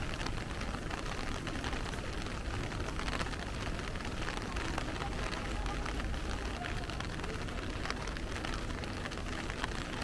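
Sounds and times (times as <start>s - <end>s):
heavy rain drumming on umbrella: 0.0s - 10.0s.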